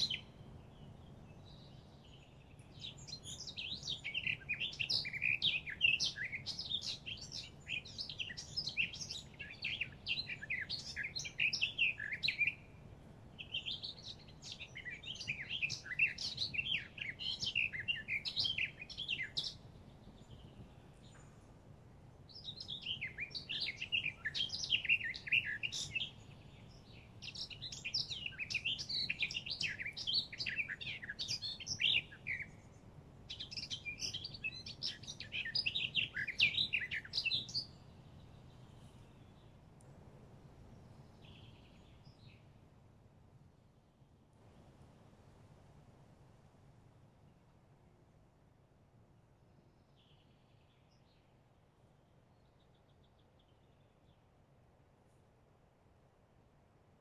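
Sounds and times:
songbird twittering: 0.0 - 21.4, 22.2 - 39.6, 40.7 - 42.6.

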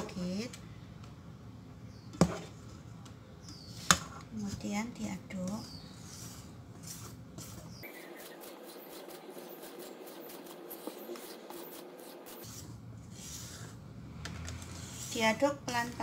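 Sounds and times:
soft scraping of batter: 2.2 - 16.0.

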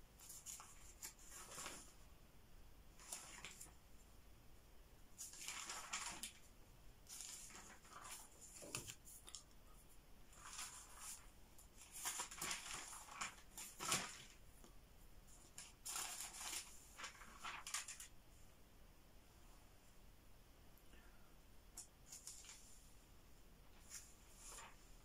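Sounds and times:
book pages rustling: 0.2 - 2.0, 3.0 - 3.8, 5.2 - 9.6, 10.3 - 14.7, 15.3 - 18.2, 21.8 - 22.8, 23.7 - 25.0.

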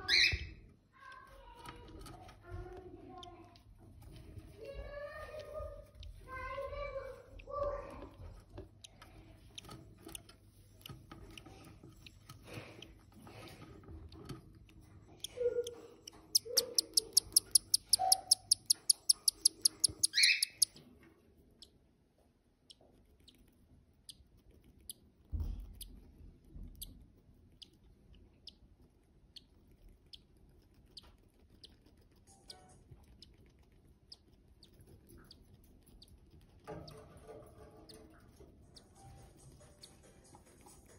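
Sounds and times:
chick squeaking: 0.0 - 0.6, 15.2 - 20.8
chick peeping: 15.2 - 20.8.

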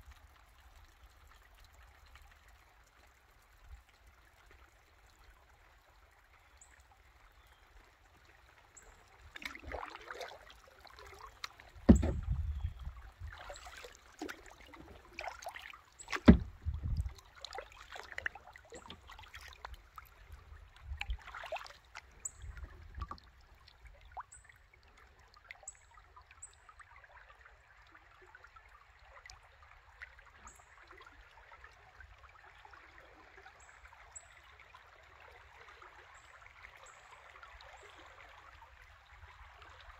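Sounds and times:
water trickling: 0.0 - 39.9
water splashing around kayak: 8.6 - 26.2
sharp knocks with deep thud: 11.9 - 12.5, 16.1 - 16.8.

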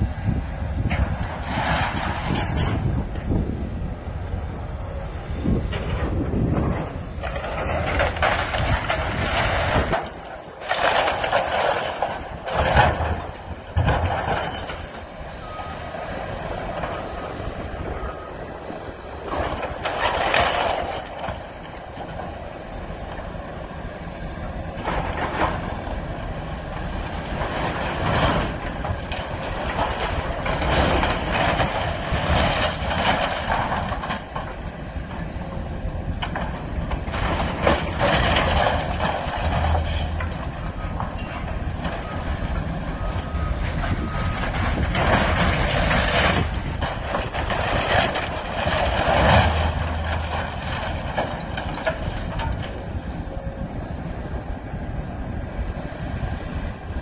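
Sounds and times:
diesel engine under load: 0.0 - 57.0
timber crashing and cracking: 6.5 - 15.0, 27.1 - 34.7, 36.2 - 42.1, 43.6 - 52.8.

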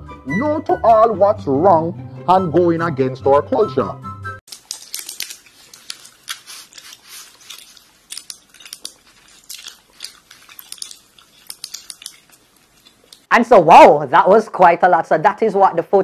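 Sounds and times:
small clicks and crackles: 4.5 - 13.3.

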